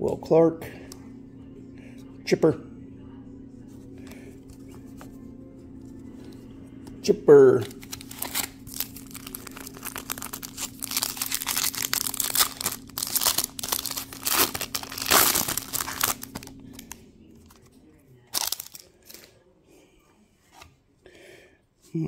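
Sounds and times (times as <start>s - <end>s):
foil wrapper crinkling: 7.6s - 17.6s, 18.3s - 19.2s.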